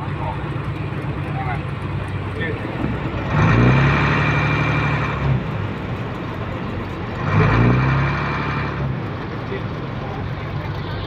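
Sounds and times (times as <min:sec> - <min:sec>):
boat engine revving: 0:00.0 - 0:11.0.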